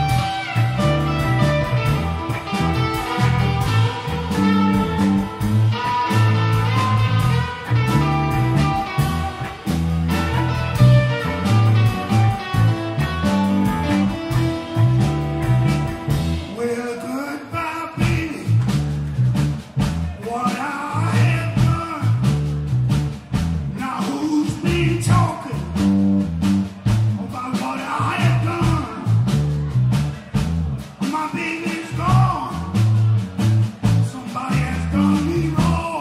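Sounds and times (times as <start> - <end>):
blues-rock band playing: 0.0 - 36.0
man singing: 16.4 - 18.6, 20.2 - 22.3, 23.8 - 25.8, 27.2 - 29.2, 31.0 - 32.8, 34.0 - 36.0.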